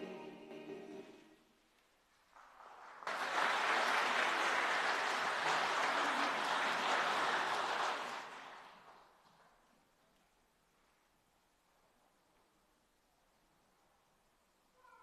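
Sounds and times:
congregation applauding: 2.3s - 9.5s.

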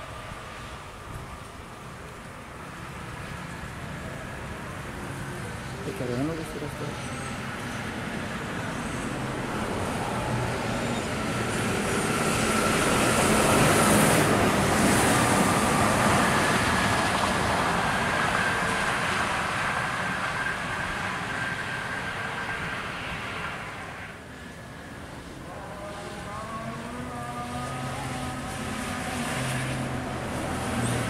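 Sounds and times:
bus passing: 0.0s - 31.0s
tyres on wet road: 0.0s - 31.0s.

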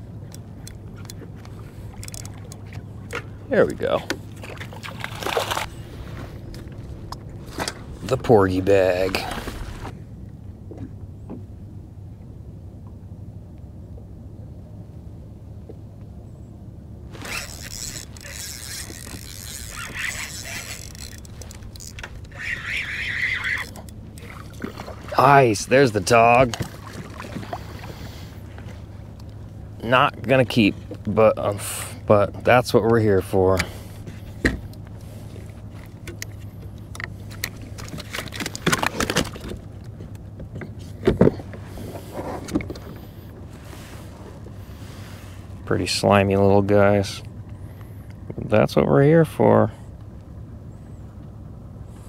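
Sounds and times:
steady low hum: 0.0s - 52.0s
fishing reel gears whirring: 0.9s - 2.7s, 17.1s - 24.6s.

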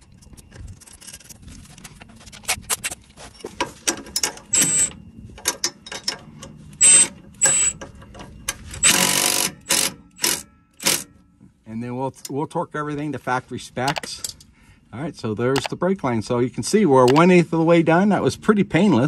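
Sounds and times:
ratchet clicking: 8.8s - 11.1s.

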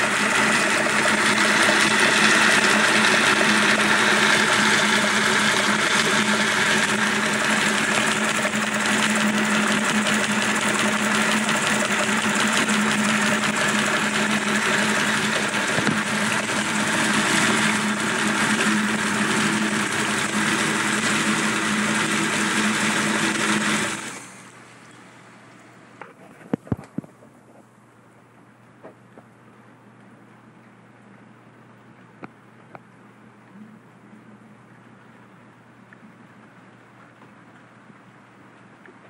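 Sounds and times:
engine running with valve noise: 0.0s - 25.4s.

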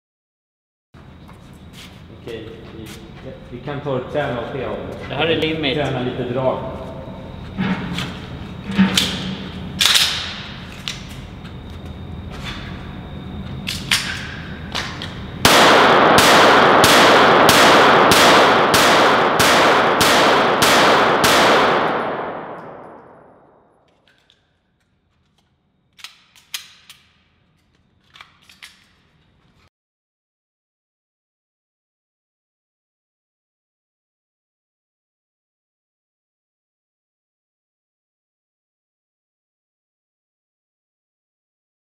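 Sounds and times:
pistol shots echoing: 15.4s - 23.4s.

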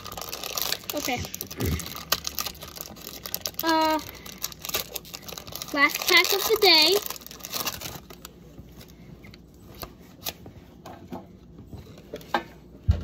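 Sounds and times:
foil wrapper tearing and crinkling: 0.0s - 8.9s.

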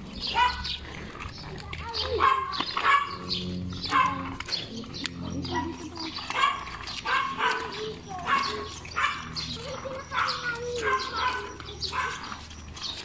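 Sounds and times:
dog barking: 0.3s - 0.7s, 2.1s - 3.3s, 3.9s - 4.3s, 6.3s - 12.4s.

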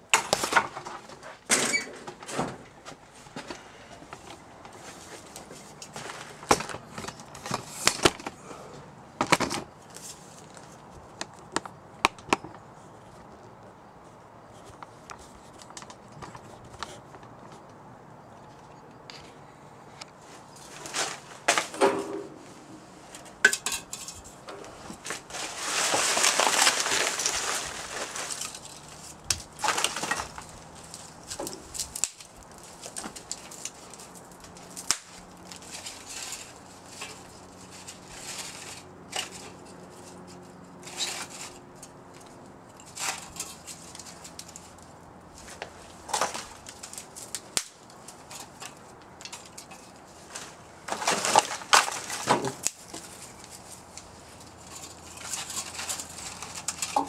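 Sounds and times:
crunching of kindling: 0.0s - 57.0s
rustling of dry kindling: 0.0s - 57.0s
dry sticks snapping: 9.2s - 12.6s, 23.2s - 57.0s.

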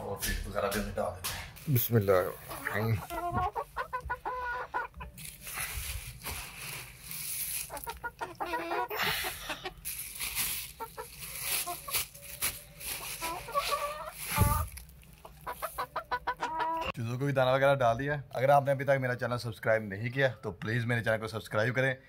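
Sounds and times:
plastic feed bag rustling: 1.6s - 16.1s
hens clucking: 2.1s - 6.2s, 7.0s - 17.0s.

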